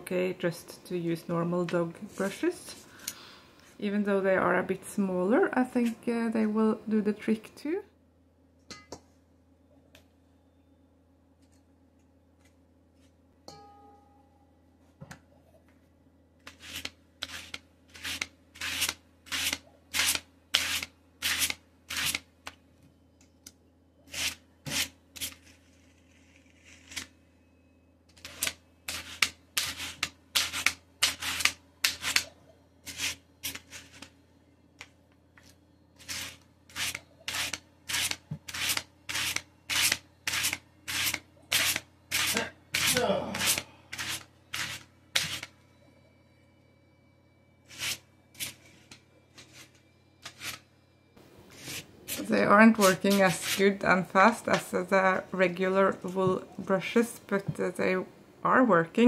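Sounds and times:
wire brushes scratching: 36.0 - 45.5.

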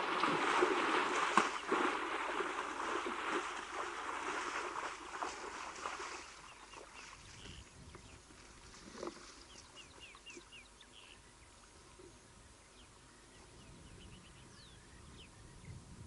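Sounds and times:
water splashing and sloshing: 0.0 - 10.6.

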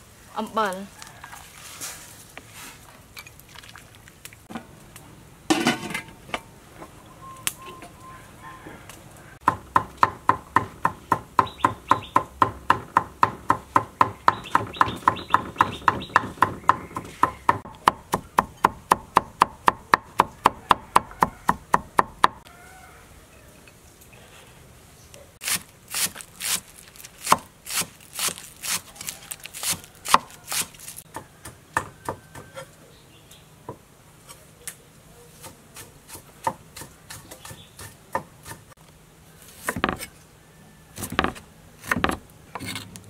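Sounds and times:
cleaver chopping on wooden block: 9.4 - 22.4, 29.7 - 32.5.

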